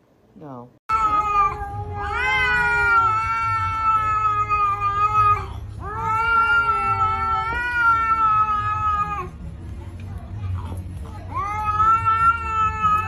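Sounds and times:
cat yowling: 0.9 - 9.4, 11.3 - 13.0.

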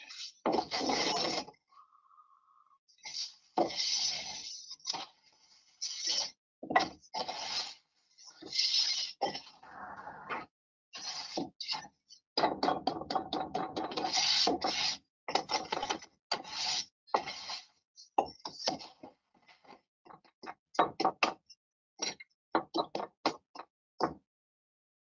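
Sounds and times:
trowel scraping mortar: 0.1 - 1.6, 3.0 - 5.2, 5.8 - 9.6, 13.9 - 17.8.

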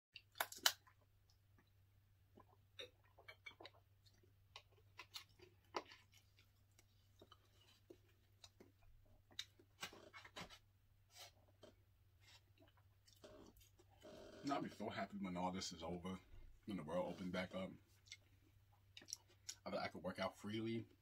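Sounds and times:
chewing: 2.3 - 10.1, 18.9 - 19.6.

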